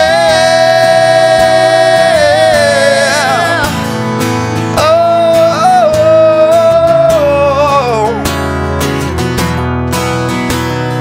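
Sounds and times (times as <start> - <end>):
person singing long notes: 0.0 - 3.9, 4.8 - 8.4
acoustic guitars strummed: 0.0 - 11.0.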